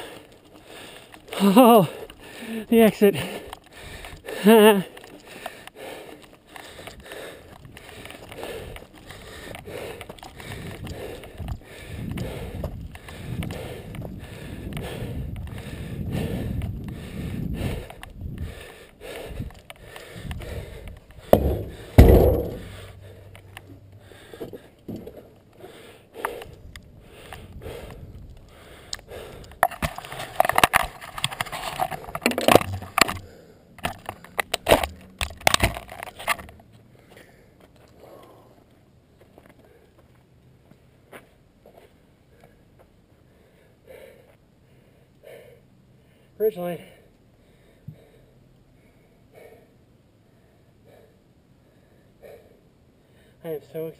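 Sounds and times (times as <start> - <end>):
bike tyres rolling on dirt: 0.0 - 25.6
sharp clicks and knocks: 19.5 - 25.2, 29.0 - 36.6
camera handling rubbing: 29.5 - 36.6.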